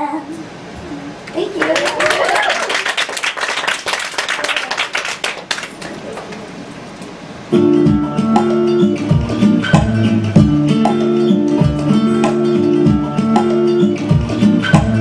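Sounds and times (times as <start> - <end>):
audience applauding: 1.4 - 6.6.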